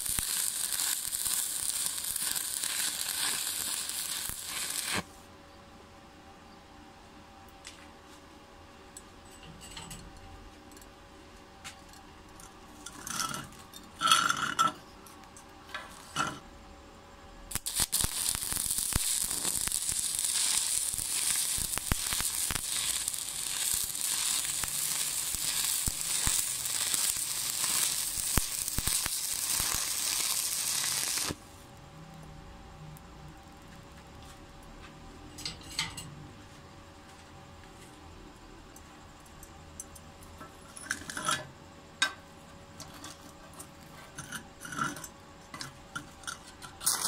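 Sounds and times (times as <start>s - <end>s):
scratchy welding bursts: 0.0s - 5.1s, 17.5s - 31.4s
arc welding crackling sizzle: 0.0s - 5.3s, 11.6s - 16.4s, 17.4s - 47.0s.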